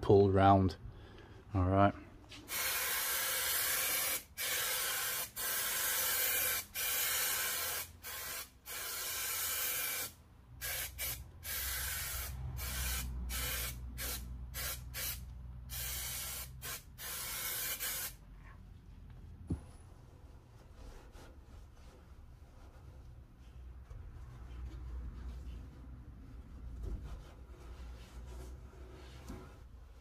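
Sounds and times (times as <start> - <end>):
spray adhesive hissing: 2.5 - 18.2.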